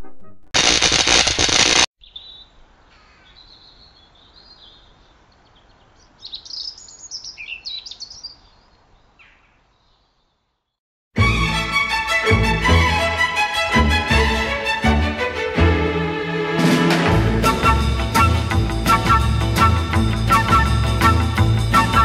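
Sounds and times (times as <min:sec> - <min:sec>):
loud burst of noise: 0:00.6 - 0:01.9
faint bird chirps: 0:02.0 - 0:10.8
violin music: 0:11.2 - 0:22.0.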